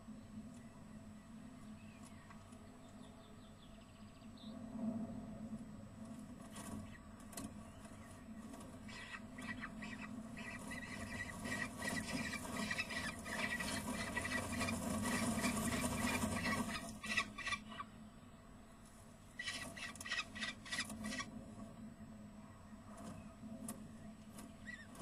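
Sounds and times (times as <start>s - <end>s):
falcon chicks squealing calls: 8.8s - 17.9s, 19.4s - 21.3s.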